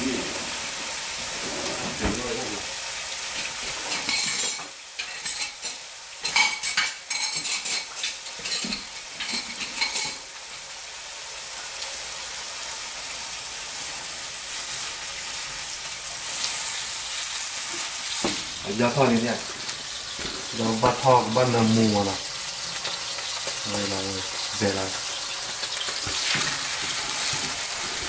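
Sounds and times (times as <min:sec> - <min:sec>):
steak sizzling in a wok: 0:00.0 - 0:28.0
kitchen utensils and dishes clinking: 0:03.4 - 0:10.4, 0:17.6 - 0:28.0.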